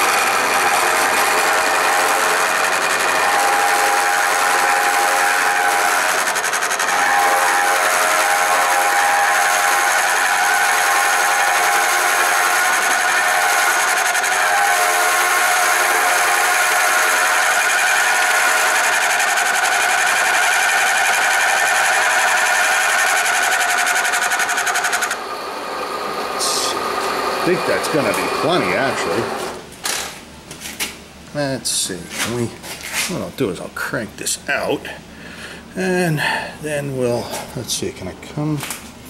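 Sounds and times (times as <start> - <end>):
milling machine cutting metal: 0.0 - 29.6.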